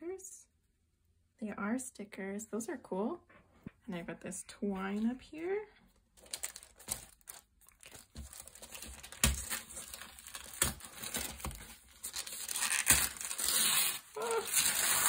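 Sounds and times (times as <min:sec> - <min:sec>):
paper wrapping rustling: 0:06.1 - 0:15.0
paper tearing: 0:07.8 - 0:15.0.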